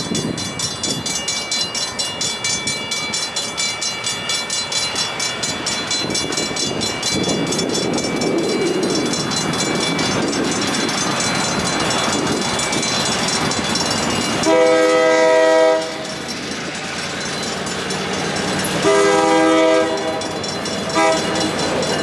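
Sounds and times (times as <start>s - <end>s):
crossing bell ringing: 0.0s - 22.0s
locomotive air horn: 14.4s - 16.0s, 18.8s - 20.3s, 20.9s - 21.5s.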